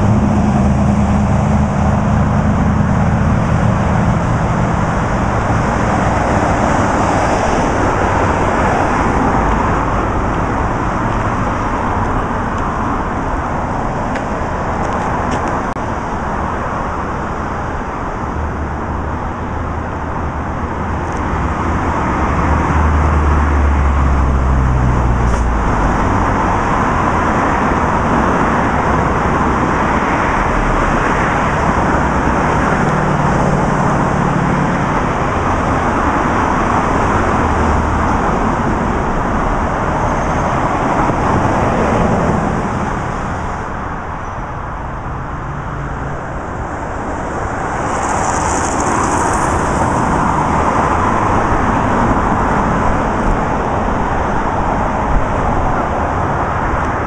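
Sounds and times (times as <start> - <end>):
road traffic rumble and hiss: 0.0 - 57.0.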